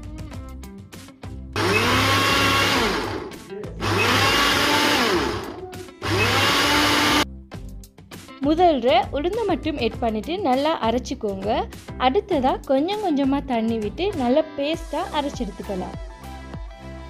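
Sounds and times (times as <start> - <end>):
mixer grinder whirring: 1.6 - 7.2.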